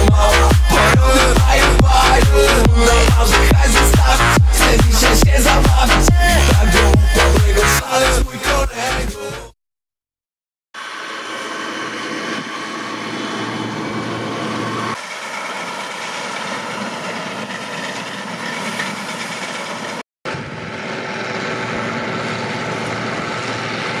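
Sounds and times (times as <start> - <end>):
combine harvester droning: 0.0 - 8.2, 10.8 - 24.0.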